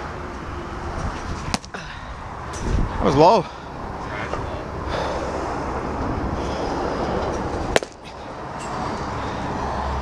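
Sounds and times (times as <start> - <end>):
steady rushing noise: 0.0 - 10.0
baseball striking crack: 1.4 - 1.8, 7.7 - 8.2.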